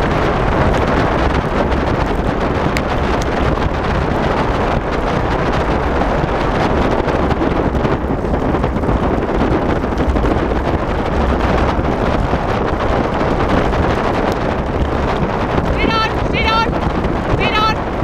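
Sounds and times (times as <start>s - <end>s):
low rumble: 0.0s - 18.0s
wind buffeting microphone: 0.0s - 18.0s.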